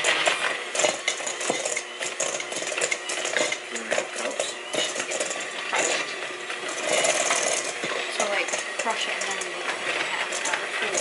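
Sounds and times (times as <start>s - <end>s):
beaters clinking against metal bowl: 0.0s - 11.0s
electric hand mixer running: 0.0s - 11.0s.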